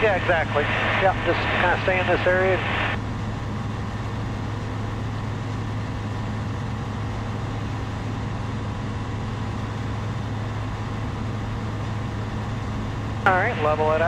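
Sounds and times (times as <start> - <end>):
light aircraft engine droning: 0.0 - 14.0.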